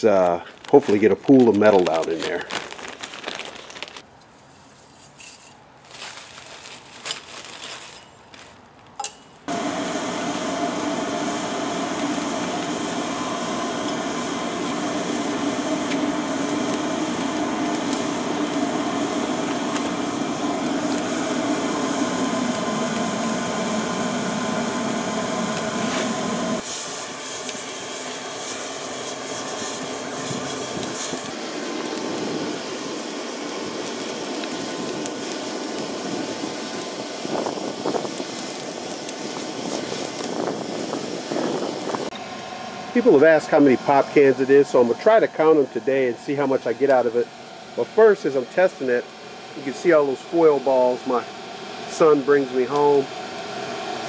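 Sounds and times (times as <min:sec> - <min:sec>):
light clinks and rustles: 0:04.2 - 0:09.4
electric blower running: 0:09.5 - 0:54.0.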